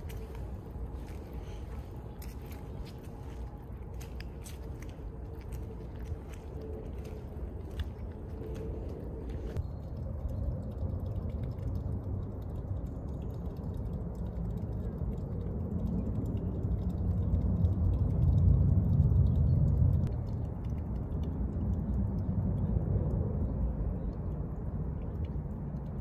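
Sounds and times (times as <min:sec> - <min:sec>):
wind buffeting microphone: 0:00.0 - 0:09.6.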